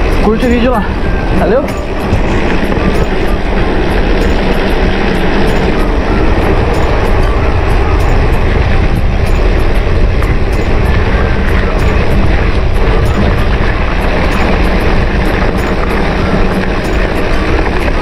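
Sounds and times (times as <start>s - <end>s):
bike ticks and rattles: 0.0s - 18.0s
wind on microphone: 0.0s - 18.0s.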